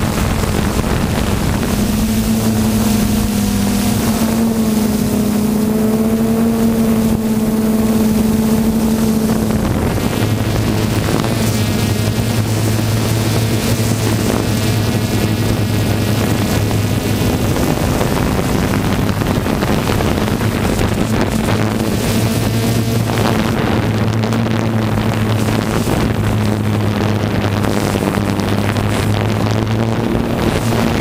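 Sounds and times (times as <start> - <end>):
drone propellers humming: 0.0 - 31.0
wind noise on microphone: 0.0 - 31.0.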